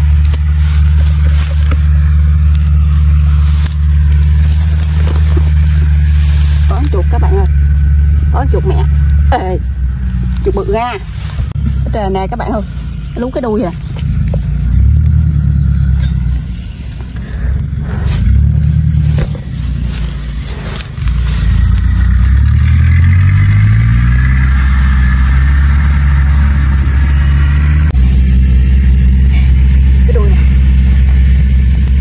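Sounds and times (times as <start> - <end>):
hands scraping soil: 0.0 - 24.4
motor engine drone: 0.0 - 32.0.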